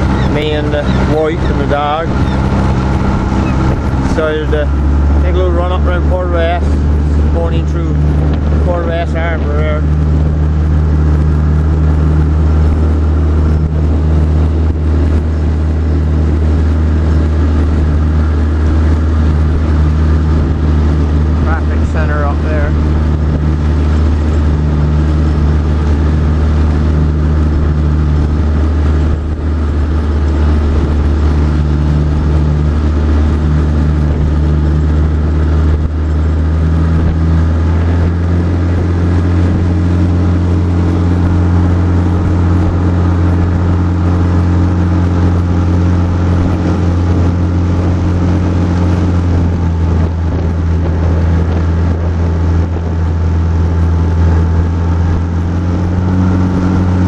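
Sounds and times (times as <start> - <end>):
motorboat engine droning: 0.0 - 57.0.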